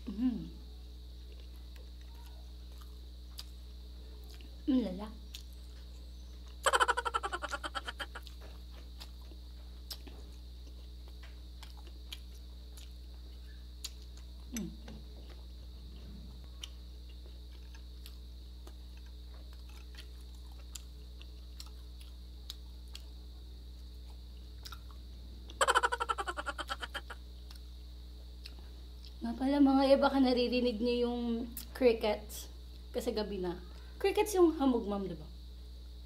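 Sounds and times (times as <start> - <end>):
crickets droning: 0.0 - 36.0
soft chewing and clicks: 1.2 - 4.6, 5.3 - 6.6, 8.1 - 25.6, 27.3 - 29.2
rapid chirps: 5.4 - 8.3, 25.5 - 27.2.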